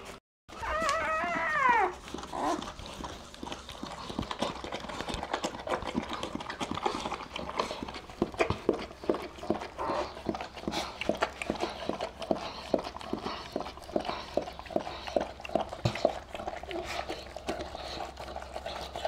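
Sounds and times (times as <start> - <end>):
newborn puppy crying: 0.5 - 2.6
dog licking wet smacks: 2.0 - 19.0.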